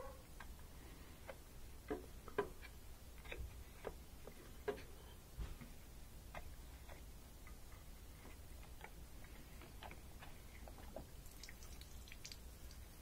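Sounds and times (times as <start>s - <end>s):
water dripping: 11.1s - 13.0s.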